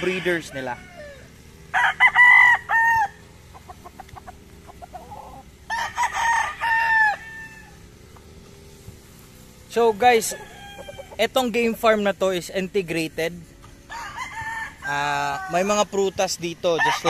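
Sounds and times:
rooster crowing: 0:00.0 - 0:08.0, 0:09.8 - 0:11.9, 0:13.8 - 0:17.0.

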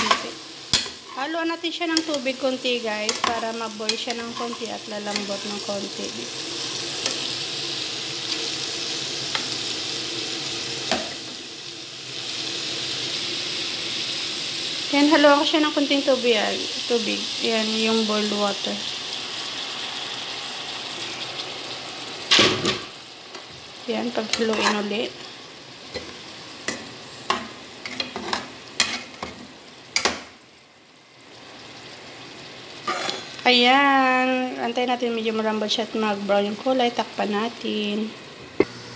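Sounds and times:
metal tongs scraping a pan: 0:00.0 - 0:05.8, 0:24.2 - 0:25.3, 0:25.9 - 0:29.4, 0:32.8 - 0:33.4
vegetables sizzling in a frying pan: 0:00.0 - 0:38.9.

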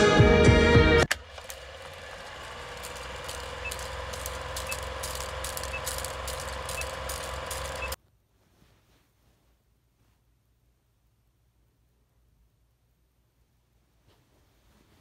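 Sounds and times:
film projector whirring: 0:01.0 - 0:08.0
crackles: 0:01.1 - 0:08.0
faint ticking: 0:01.1 - 0:08.0.

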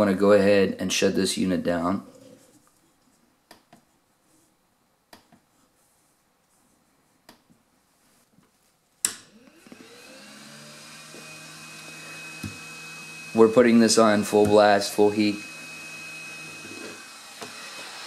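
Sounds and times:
hot-air blower whine: 0:09.1 - 0:18.0.

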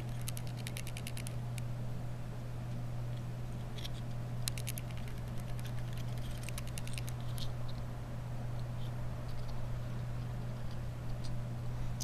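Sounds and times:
steady low hum: 0:00.0 - 0:12.0
small plastic and metal clicks: 0:03.8 - 0:07.8.

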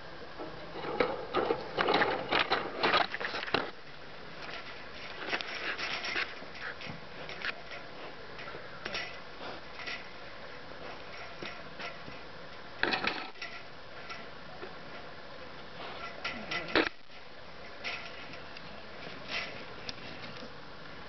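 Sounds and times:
scraping and clicking: 0:04.4 - 0:09.2, 0:15.9 - 0:20.5.

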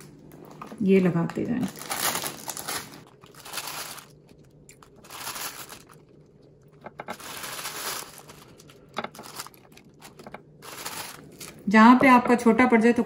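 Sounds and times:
plastic packet crinkling: 0:01.4 - 0:11.8.

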